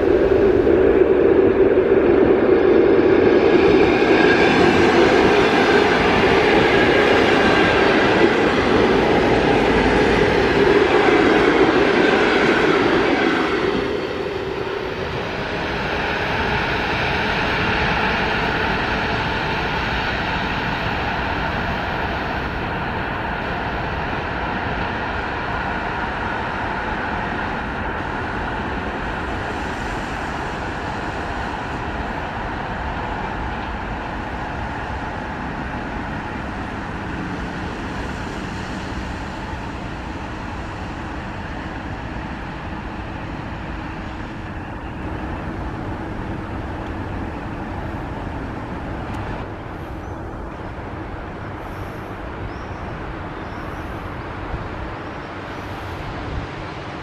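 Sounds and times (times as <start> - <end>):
train rumbling on the line: 0.0 - 57.0.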